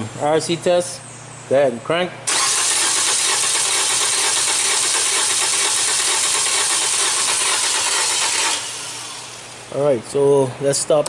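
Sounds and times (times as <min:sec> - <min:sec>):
engine cranking without starting: 0:02.3 - 0:09.4.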